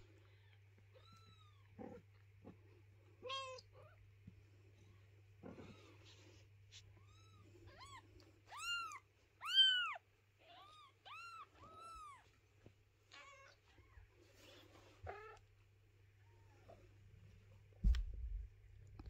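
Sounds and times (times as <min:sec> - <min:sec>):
newborn kittens mewing: 0:05.4 - 0:12.4.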